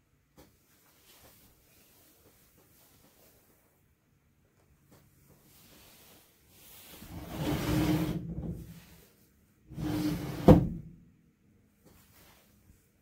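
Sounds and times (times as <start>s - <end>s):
sliding door sliding: 7.0s - 8.9s, 9.7s - 10.9s.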